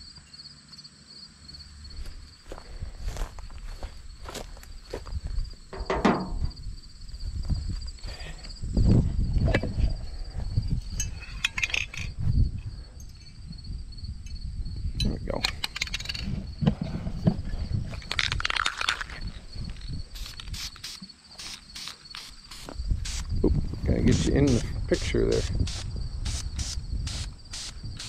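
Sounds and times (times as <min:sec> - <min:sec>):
insects chirping: 0:00.0 - 0:28.0
light metal clinks: 0:10.7 - 0:13.4.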